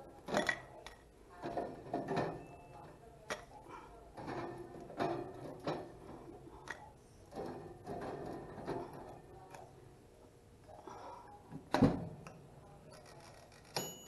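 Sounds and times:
click with metallic ring: 13.7 - 14.0.

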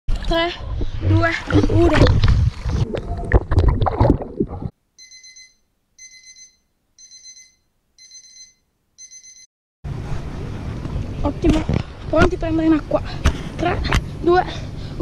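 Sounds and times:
water splashing: 0.1 - 4.7.

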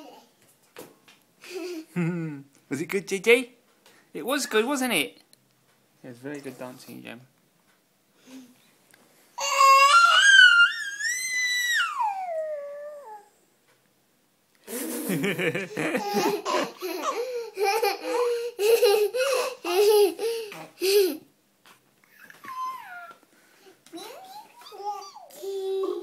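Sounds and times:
child squealing: 9.4 - 13.3, 22.2 - 23.2
baby laughing: 14.7 - 21.3, 22.1 - 23.2.

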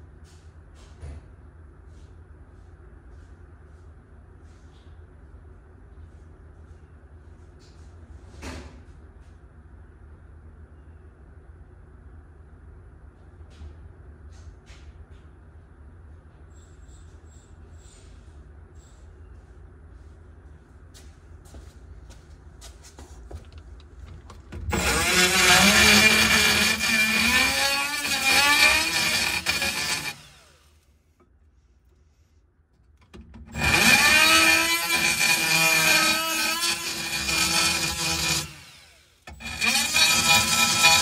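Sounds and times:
power drill cutting metal: 24.6 - 30.8, 33.4 - 41.0.

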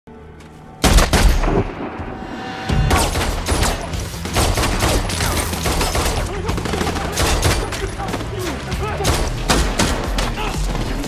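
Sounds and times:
low rumble: 0.9 - 4.3
rapid gunshots: 2.9 - 11.0.

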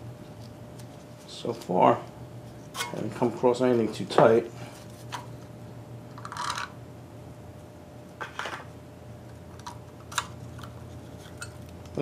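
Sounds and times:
metal scraping handling sounds: 2.5 - 3.3.

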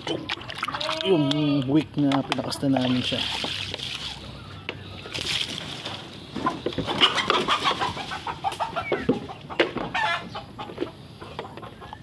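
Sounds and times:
chickens clucking: 0.0 - 12.0
chicken squawk: 6.4 - 11.9.

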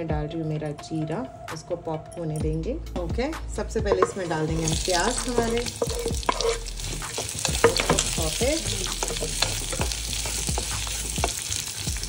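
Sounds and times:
wooden spatula scraping a pot: 3.9 - 11.8
onions sizzling in oil: 4.0 - 12.0.

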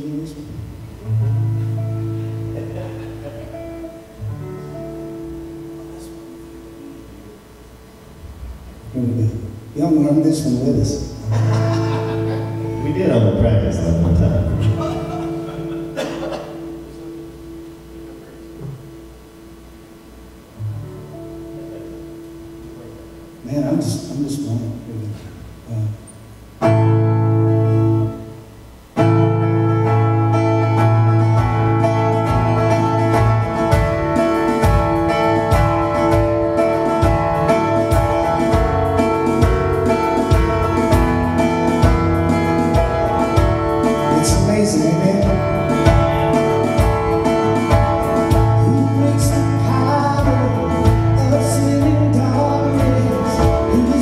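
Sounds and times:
guitar chord ringing: 0.0 - 54.0
live band playing: 0.0 - 54.0
drum beat: 11.3 - 12.8, 32.1 - 52.0.

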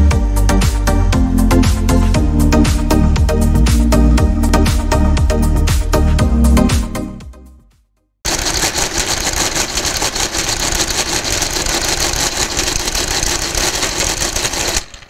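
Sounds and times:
intro music: 0.0 - 8.7
mechanical calculator clattering: 8.3 - 15.0.

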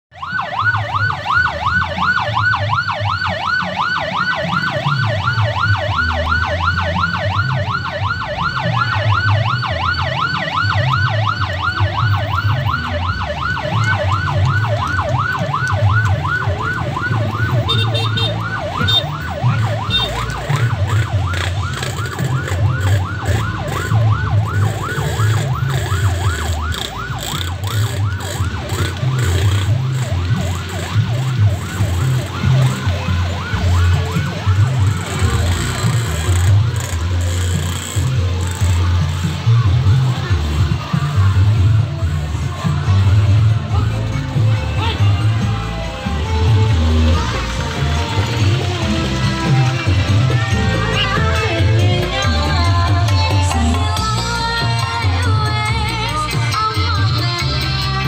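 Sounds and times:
electronic siren yelping: 0.1 - 42.9.

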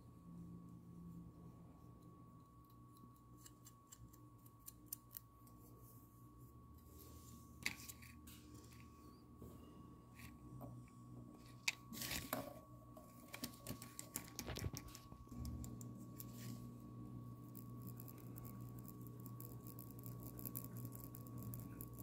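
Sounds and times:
faint steady hum: 0.0 - 22.0
paper rustling: 11.6 - 12.5, 13.2 - 15.2.

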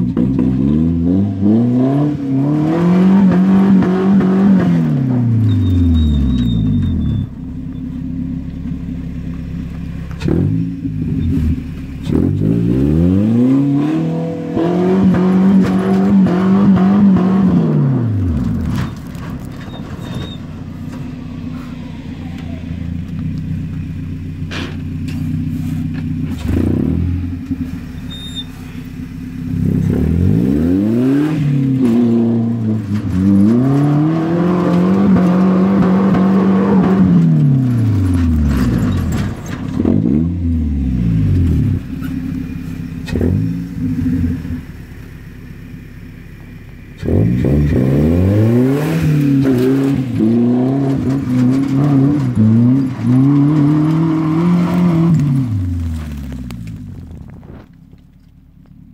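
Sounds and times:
truck engine revving hard: 0.0 - 7.3, 10.2 - 18.9, 25.5 - 28.8, 29.5 - 42.2, 43.0 - 44.6, 47.0 - 56.3.

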